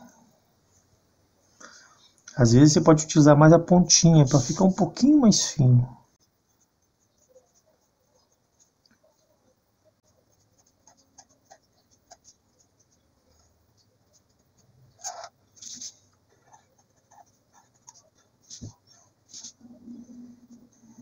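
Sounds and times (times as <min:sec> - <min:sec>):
marker scratching on paper: 0:06.5 - 0:21.0.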